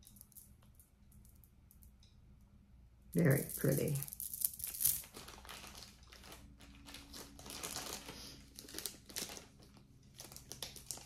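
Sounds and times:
packaging crinkling and rustling: 3.6s - 11.0s.

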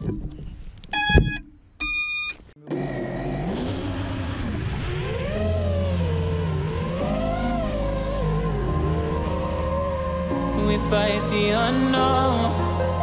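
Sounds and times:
short electronic beeps: 0.9s - 2.5s
drone motors whining: 1.0s - 10.7s.

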